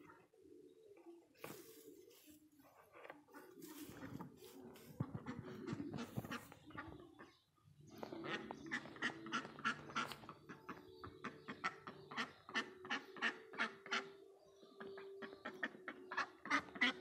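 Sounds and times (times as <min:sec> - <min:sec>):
duck quacking: 0:08.2 - 0:14.1, 0:15.4 - 0:17.0.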